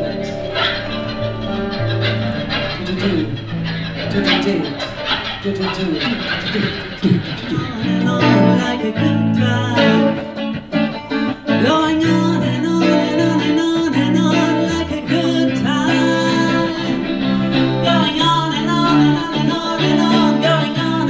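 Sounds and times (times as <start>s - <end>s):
guitar playing: 0.0s - 21.0s
woman singing into microphone: 7.5s - 10.4s, 11.3s - 21.0s.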